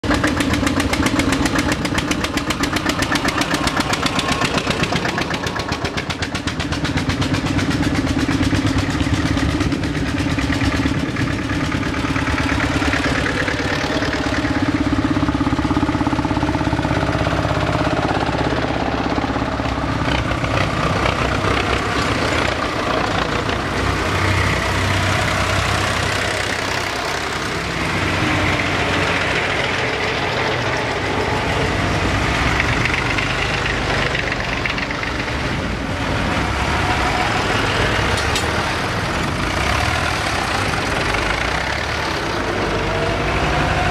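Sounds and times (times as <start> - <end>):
fast even engine beat: 0.0 - 43.9
tractor engines running: 0.0 - 43.9.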